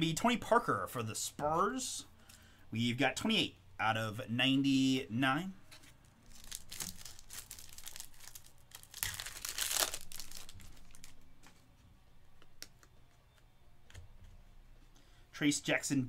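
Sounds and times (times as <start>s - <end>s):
wrapper tearing and crinkling: 6.2s - 11.2s.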